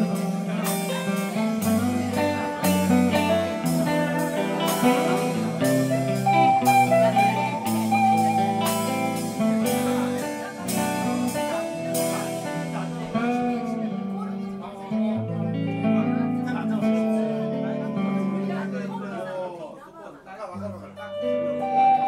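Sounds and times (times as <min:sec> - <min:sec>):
steady drum beat: 0:00.0 - 0:13.6
electric guitars playing: 0:00.0 - 0:19.6, 0:20.7 - 0:22.0.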